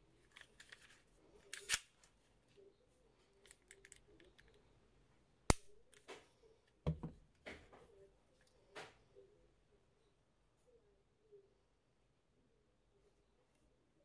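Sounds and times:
pistol knocking on box: 6.9s - 7.2s.

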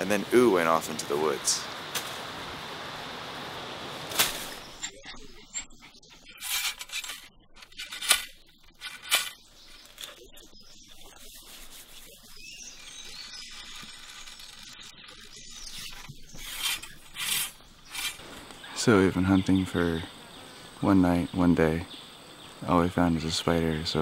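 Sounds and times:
rustling of undergrowth: 0.0s - 24.0s
machete chopping undergrowth: 4.1s - 4.7s
hands scraping soil and twigs: 6.2s - 18.6s.

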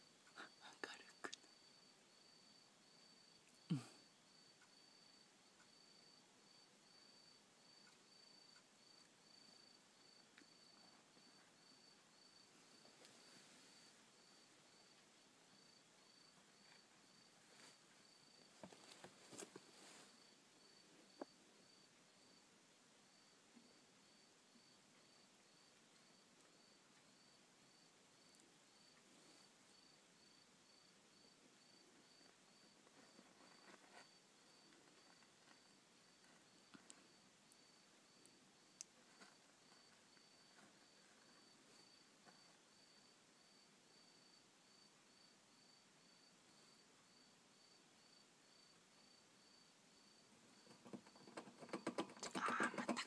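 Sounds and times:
small clicks and scratches: 32.8s - 37.6s, 50.5s - 53.0s.

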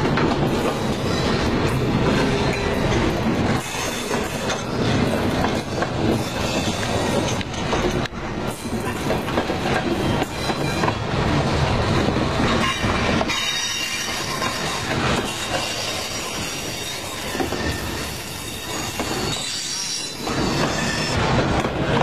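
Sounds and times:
steel wheels on rails: 0.0s - 22.0s
wheels clicking on rails: 0.0s - 22.0s
high wheel squeal: 12.7s - 21.2s.

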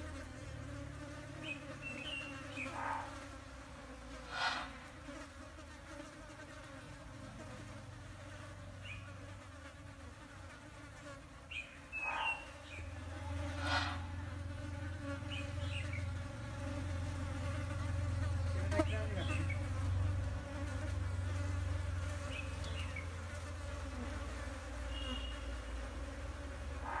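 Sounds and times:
flies buzzing: 0.0s - 27.0s
high chirps: 11.9s - 12.8s.

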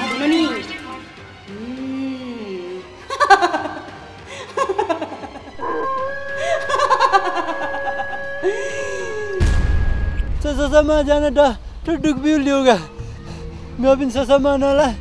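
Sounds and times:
background music held tone: 0.0s - 15.0s
woman laughing loudly: 4.6s - 9.3s.

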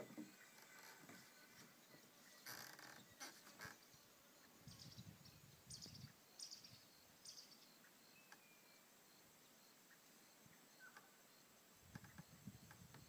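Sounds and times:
faint outdoor ambience: 0.0s - 13.0s.

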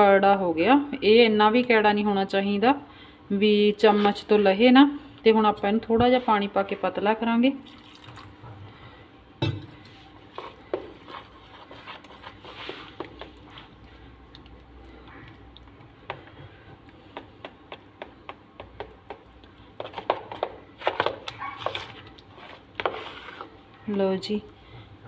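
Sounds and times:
spoon stirring thick batter: 9.8s - 23.9s
spoon scraping plastic bowl: 21.6s - 23.5s.

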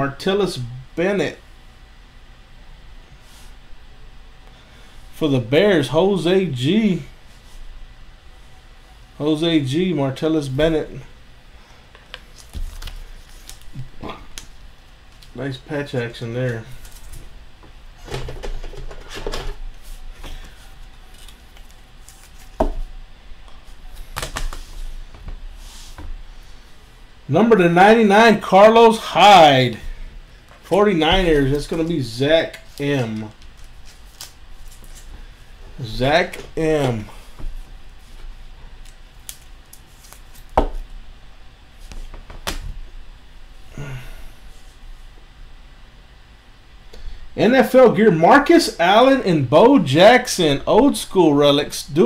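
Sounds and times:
cards clicking and tapping: 24.0s - 24.7s.

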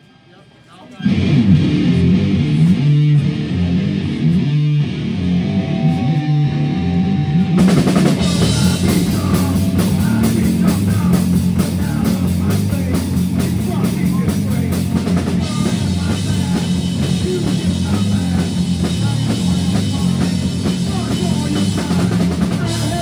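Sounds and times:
electric and bass guitar riff: 1.0s - 23.0s
drum kit and cymbals: 7.4s - 23.0s.

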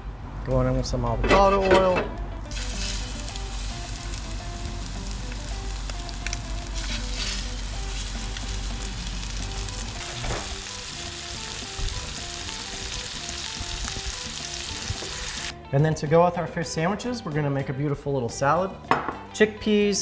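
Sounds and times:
fish frying in oil: 2.6s - 15.5s.

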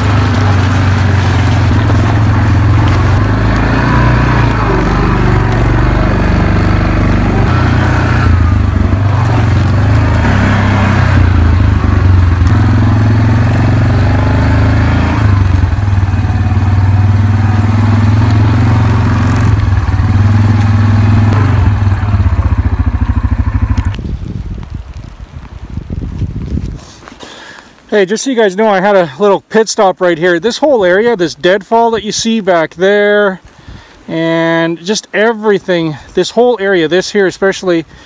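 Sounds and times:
off-road vehicle engine revving: 0.0s - 24.0s.

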